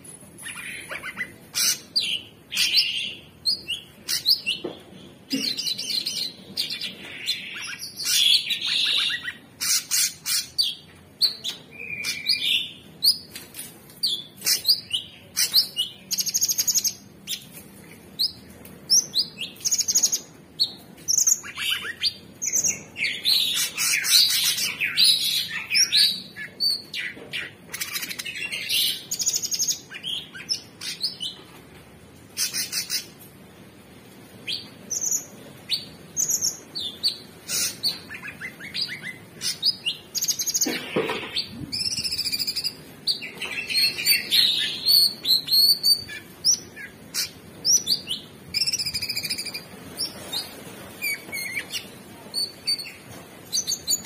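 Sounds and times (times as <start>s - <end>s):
bird singing trills and whistles: 5.4s - 13.2s, 41.3s - 54.0s.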